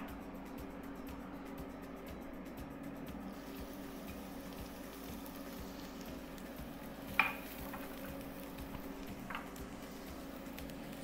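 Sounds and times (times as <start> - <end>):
low steady hum: 0.0 - 11.0
garlic sizzling in oil: 3.2 - 11.0.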